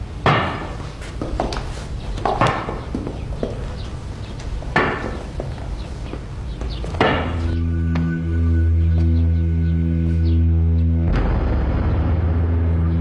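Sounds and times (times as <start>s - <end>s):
sharp ringing knocks: 6.9s - 8.1s.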